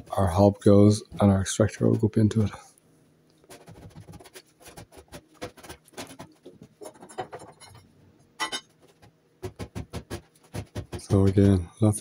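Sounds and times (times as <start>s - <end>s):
wooden joists knocking and scraping: 8.8s - 11.6s.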